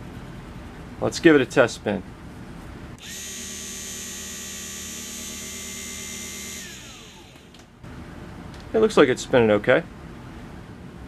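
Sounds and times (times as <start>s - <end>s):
small electric motor whining: 3.0s - 7.8s.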